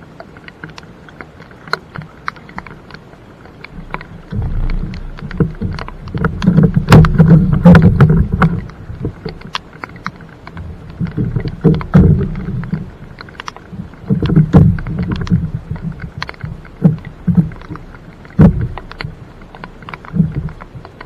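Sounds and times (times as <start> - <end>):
kayak knocking and scraping in water: 0.0 - 21.0
low rumble: 3.7 - 9.2.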